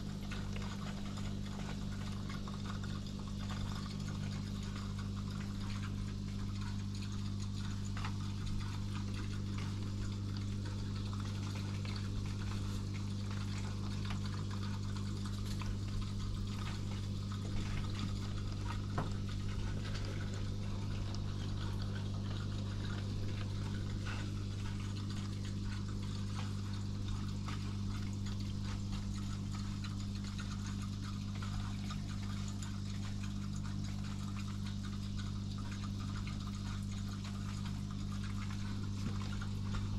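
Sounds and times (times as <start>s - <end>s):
aquarium pump hum: 0.0s - 39.9s
water bubbling and trickling: 0.0s - 39.9s.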